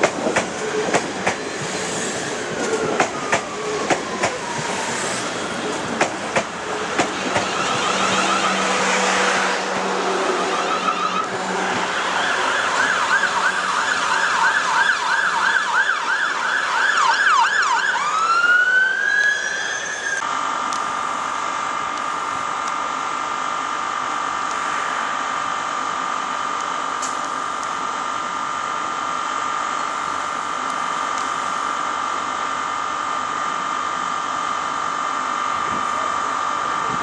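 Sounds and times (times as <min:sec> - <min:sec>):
emergency siren yelping and wailing: 0:02.2 - 0:09.0, 0:10.2 - 0:20.2
steady high-pitched tone: 0:23.8 - 0:28.1.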